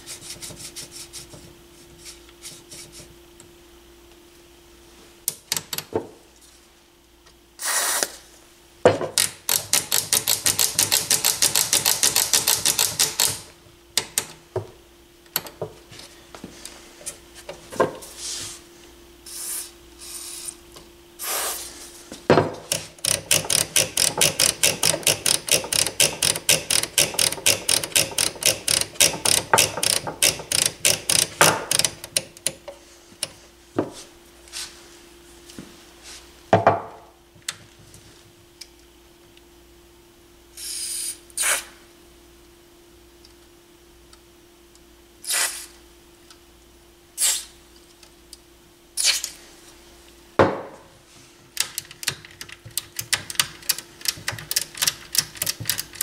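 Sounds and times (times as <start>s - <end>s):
spray can hissing: 7.6s - 8.1s, 19.3s - 20.5s, 21.2s - 21.6s, 45.3s - 45.7s, 47.2s - 47.5s
rapid clicking of control knob: 22.7s - 32.6s, 51.6s - 56.0s.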